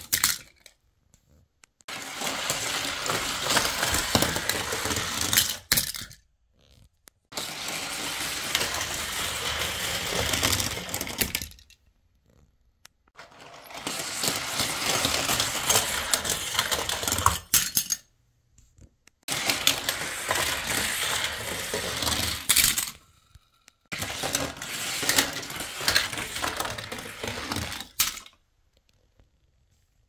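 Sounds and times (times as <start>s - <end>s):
toy cars clattering: 0.0s - 0.8s, 1.9s - 6.2s, 7.3s - 11.8s, 13.2s - 18.1s, 19.3s - 28.4s.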